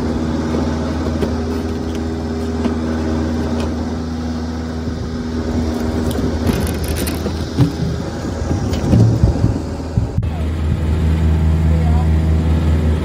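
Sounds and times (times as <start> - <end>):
log splitter engine running: 0.0 - 13.0
heavy thuds of logs falling: 6.4 - 10.2.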